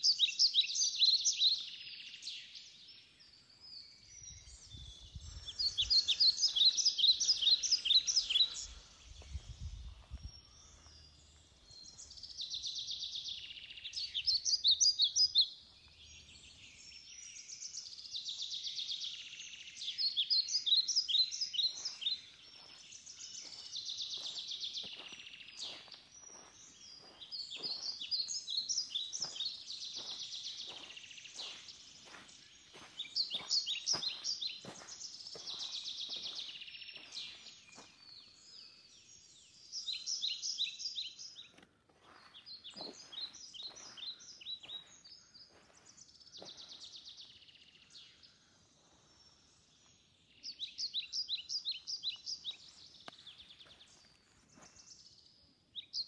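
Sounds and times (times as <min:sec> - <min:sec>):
songbirds singing: 0:00.0 - 0:56.0
soft footsteps: 0:09.2 - 0:12.0, 0:21.7 - 0:38.0, 0:41.5 - 0:46.7.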